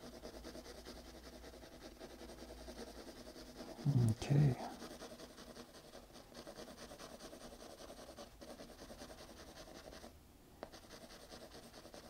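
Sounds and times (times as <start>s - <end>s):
pencil scratching on paper: 0.0s - 12.0s
pencil tapping paper: 0.0s - 12.0s.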